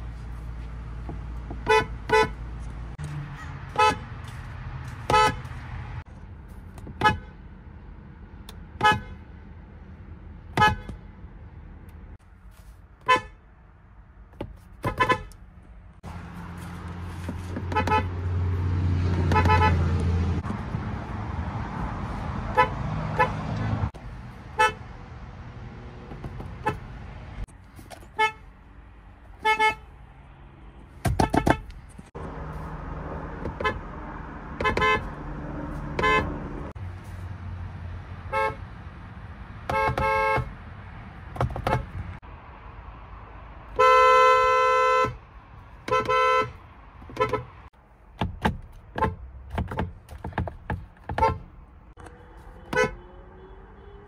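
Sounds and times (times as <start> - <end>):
car horns tooting: 1.6 - 2.4, 3.3 - 4.1, 5.0 - 5.6, 6.9 - 7.4, 8.8 - 9.2, 10.5 - 11.0, 13.0 - 13.4, 14.8 - 15.4, 17.4 - 18.5, 19.1 - 20.4, 22.5 - 23.9, 24.5 - 24.9, 26.4 - 27.0, 28.0 - 28.6, 29.4 - 29.9, 31.0 - 31.8, 33.4 - 36.8, 38.2 - 38.7, 39.6 - 40.6, 41.4 - 42.2, 43.7 - 45.2, 45.8 - 47.7, 51.0 - 54.0.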